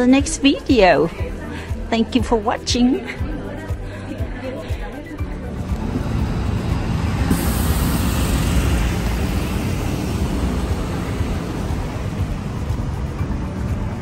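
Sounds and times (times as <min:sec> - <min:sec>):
bus engine and tyres rumbling: 0:05.0 - 0:14.0
bus hiss: 0:05.5 - 0:13.7.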